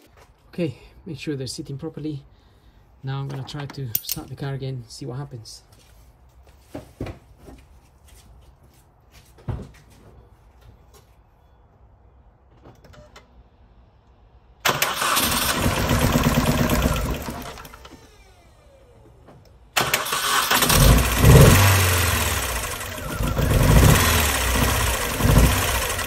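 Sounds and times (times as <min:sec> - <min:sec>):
car engine cranking and starting: 0:14.6 - 0:18.9, 0:19.7 - 0:26.0.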